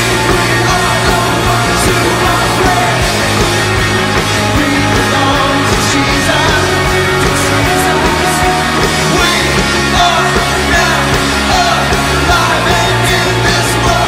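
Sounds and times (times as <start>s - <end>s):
bass line: 0.0s - 14.0s
rock music with singing: 0.0s - 14.0s.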